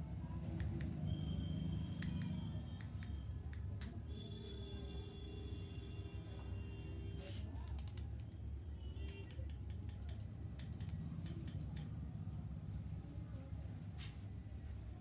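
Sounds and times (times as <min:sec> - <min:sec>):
scissors snipping hair: 0:00.5 - 0:01.0, 0:02.0 - 0:04.0, 0:07.6 - 0:08.4, 0:09.0 - 0:12.0.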